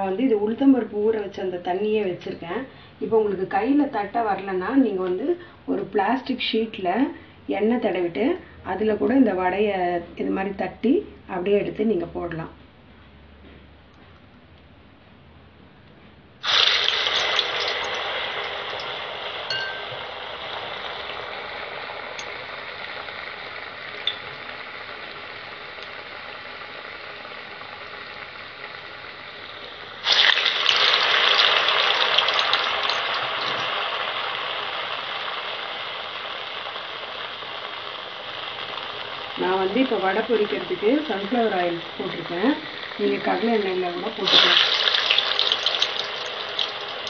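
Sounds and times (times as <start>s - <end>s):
food sizzling in hot oil: 16.4s - 47.0s.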